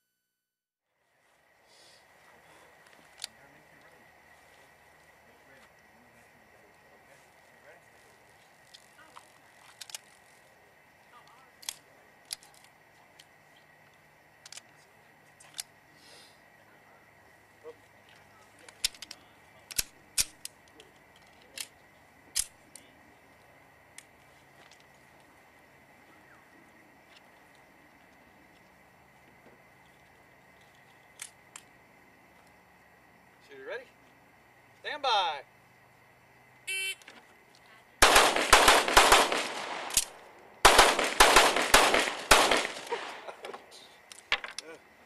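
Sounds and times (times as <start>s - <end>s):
pistol metallic clicks: 18.7s - 20.7s, 22.3s - 22.6s, 38.0s - 43.2s.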